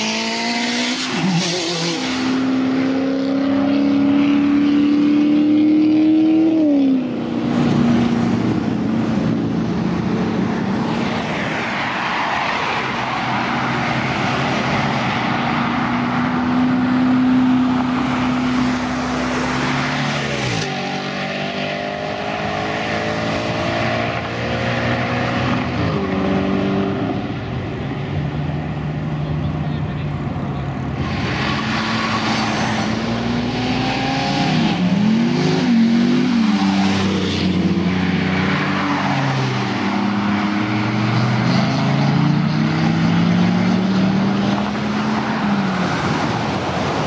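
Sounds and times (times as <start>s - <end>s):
car engine revving hard: 0.0s - 7.2s, 31.0s - 45.1s.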